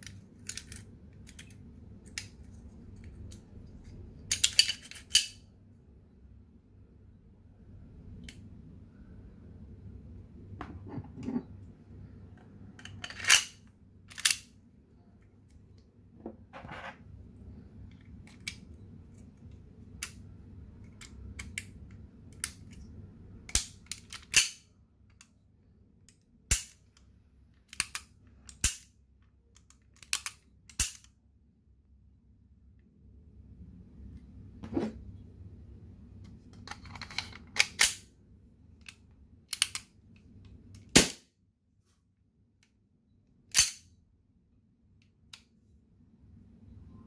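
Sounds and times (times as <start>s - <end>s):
pistol parts clicking: 0.0s - 2.4s, 4.3s - 5.4s, 12.8s - 14.5s, 23.5s - 25.3s, 26.5s - 26.8s, 27.7s - 28.9s, 29.6s - 31.1s, 36.7s - 38.1s, 38.8s - 39.9s, 43.5s - 43.9s.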